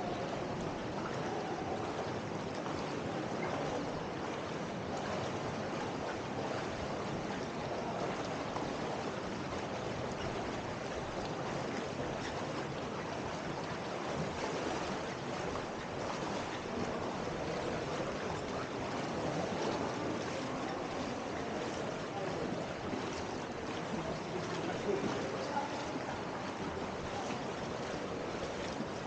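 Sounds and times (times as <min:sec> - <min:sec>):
river water flowing and rippling: 0:00.0 - 0:29.0.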